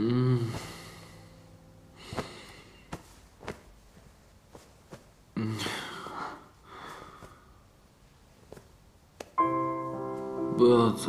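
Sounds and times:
heavy breathing out: 0.0s - 3.3s, 5.4s - 7.6s
soft piano music: 0.2s - 2.9s, 9.4s - 11.0s
man groaning: 5.4s - 6.1s.

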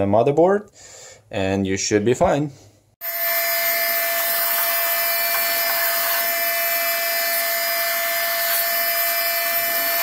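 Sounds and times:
handheld vacuum cleaner whine: 3.0s - 10.0s.

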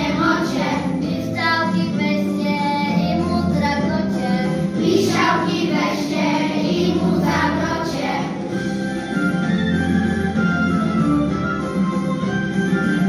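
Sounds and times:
children singing in unison: 0.0s - 1.9s, 4.0s - 8.6s
instrumental accompaniment with bass: 0.0s - 13.0s.

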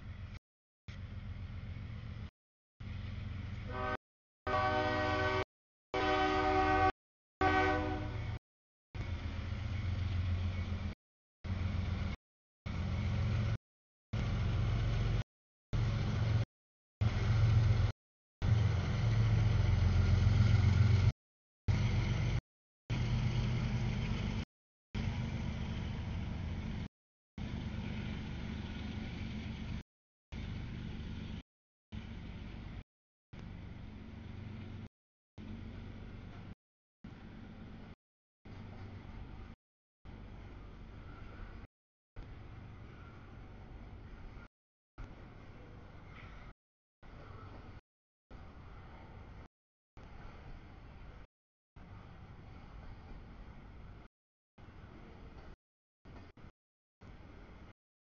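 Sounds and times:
diesel engine rumble: 0.0s - 4.0s, 9.0s - 13.6s, 14.2s - 15.2s, 15.8s - 32.8s, 33.4s - 56.5s
locomotive air horn: 3.7s - 8.4s.

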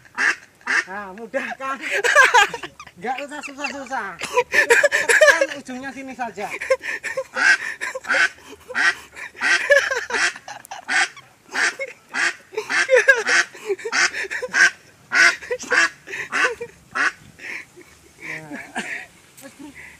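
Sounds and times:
duck honking: 0.0s - 1.2s, 7.2s - 17.2s.

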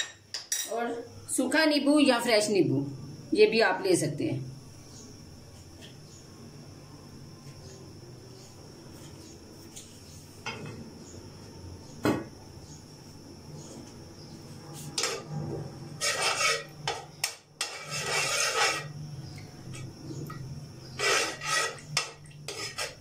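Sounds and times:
spatula scraping metal pan: 15.0s - 15.3s, 16.0s - 17.0s, 17.6s - 18.9s, 20.9s - 23.0s.

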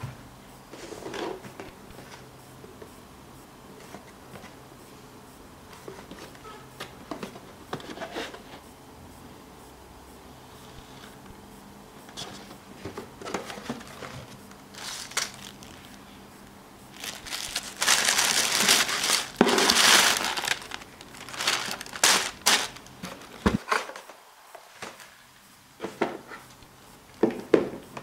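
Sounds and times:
tissue paper crinkling: 13.6s - 16.0s, 16.9s - 23.4s.

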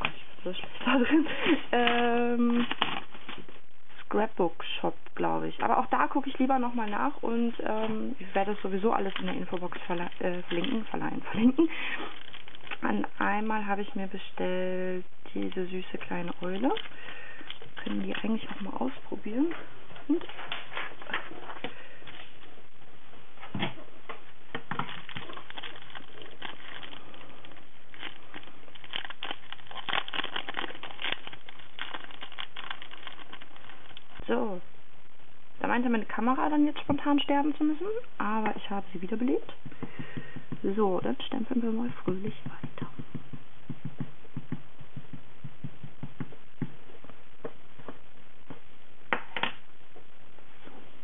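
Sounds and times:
plastic sleeve crinkling: 0.0s - 4.0s, 6.8s - 13.8s, 15.3s - 19.0s, 24.5s - 34.4s
ink pad tapping on stamp: 42.1s - 46.7s.

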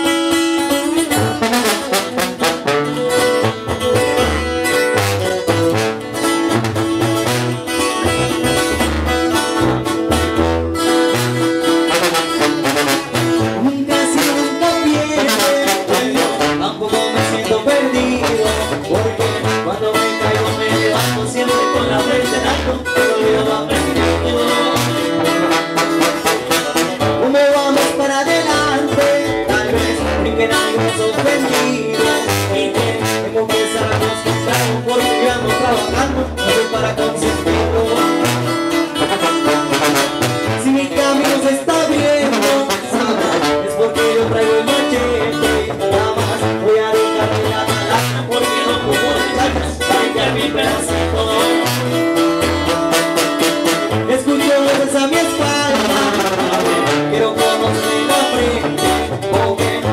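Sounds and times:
acoustic guitars strumming: 0.0s - 59.9s
sousaphone bass line: 0.0s - 59.9s
young man singing: 11.6s - 52.4s, 53.7s - 59.9s.

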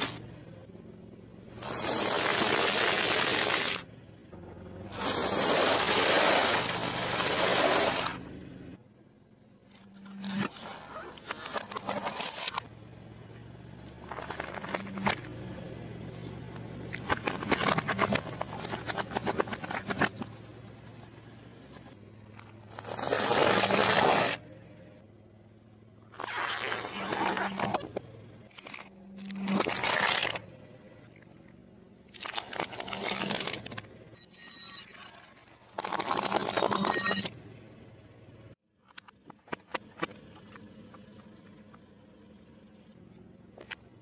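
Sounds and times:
car engine running low: 0.0s - 26.2s, 35.9s - 44.0s
car tyre crushing food: 16.9s - 20.4s, 26.1s - 30.5s, 32.1s - 33.9s.

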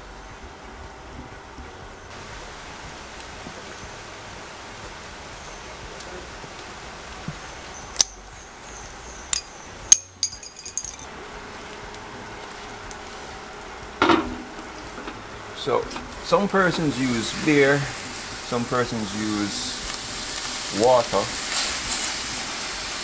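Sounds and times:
steady low hiss: 0.0s - 23.0s
glass bottle clinks: 9.3s - 11.1s
short crackle: 19.7s - 22.3s.

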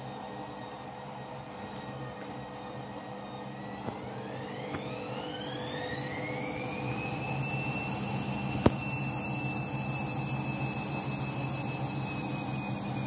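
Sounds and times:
washing machine motor whine: 0.0s - 13.0s.

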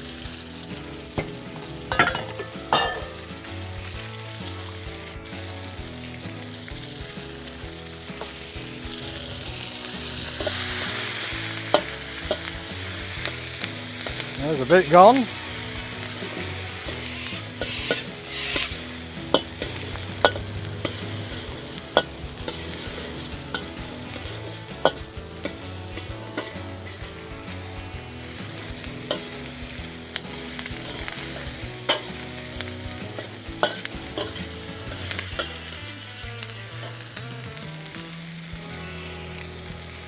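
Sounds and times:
vegetables sizzling in a wok: 0.0s - 40.0s
metal spatula scraping a wok: 8.2s - 14.4s, 15.3s - 37.1s.

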